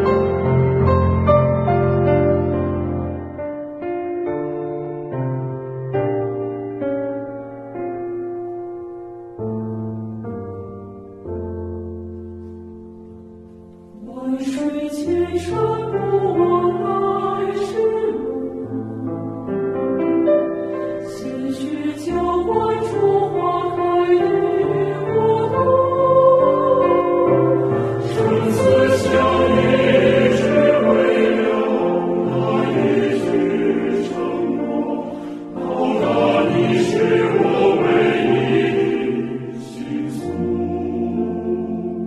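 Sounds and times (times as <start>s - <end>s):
choir singing held notes: 13.9s - 19.5s, 20.8s - 42.0s.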